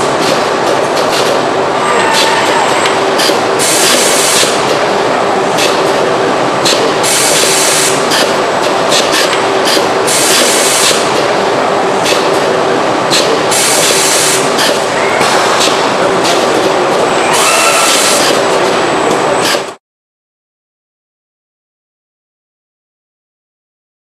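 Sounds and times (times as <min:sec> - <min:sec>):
loud mechanical din: 0:13.2 - 0:19.8.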